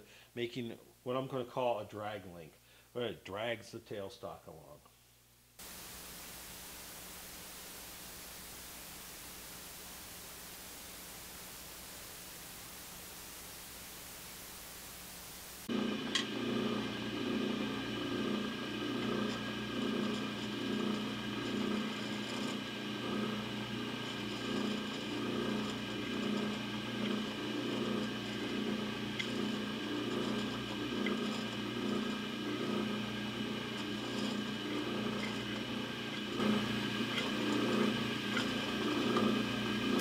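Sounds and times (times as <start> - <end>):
drill press motor hum: 15.6 - 40.0
bit cutting metal: 15.7 - 40.0.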